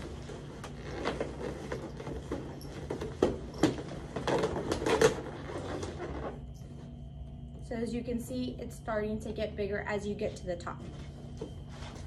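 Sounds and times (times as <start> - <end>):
balloons squeaking and rubbing: 0.0 - 3.2, 3.9 - 6.5.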